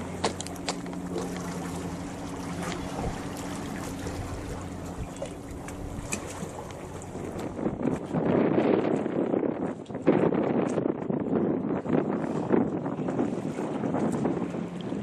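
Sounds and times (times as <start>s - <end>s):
low hum: 0.0s - 9.4s
water lapping against concrete: 0.0s - 15.0s.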